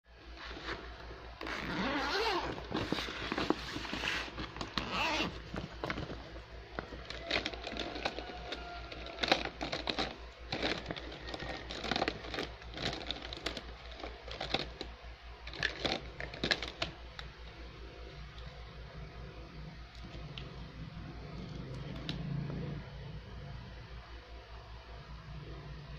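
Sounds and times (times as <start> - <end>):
faint low hum: 0.1 - 25.9
plastic bag crinkling: 0.5 - 17.3
plastic blocks clicking and clattering: 6.8 - 14.9, 15.5 - 16.9.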